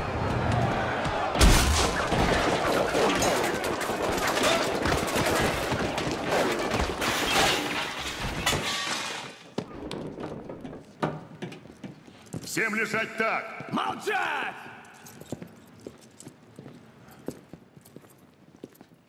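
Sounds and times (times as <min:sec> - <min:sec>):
gunfire: 0:01.2 - 0:06.9
grenade explosion: 0:01.2 - 0:07.0.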